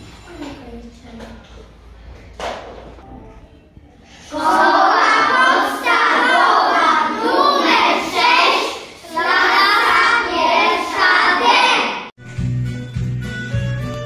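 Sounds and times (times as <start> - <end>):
children speaking in unison: 3.9 - 12.1.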